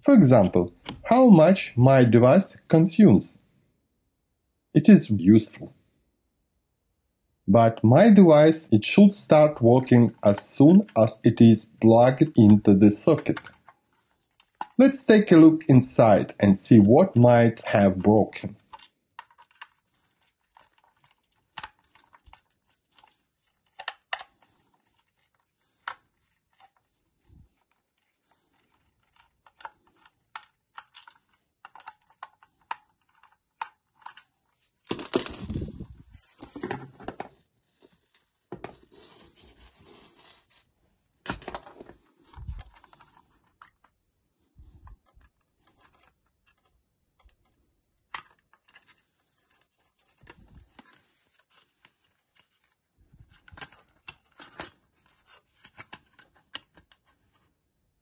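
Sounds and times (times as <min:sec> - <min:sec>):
plastic case cracking apart: 0:34.9 - 0:35.7.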